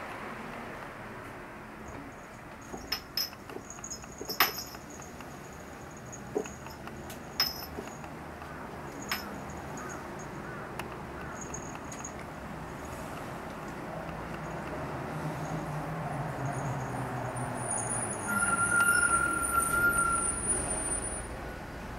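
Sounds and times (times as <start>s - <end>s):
small bell jingling: 2.1s - 7.9s
ornament knocking and rattling: 2.6s - 5.4s, 6.1s - 8.0s.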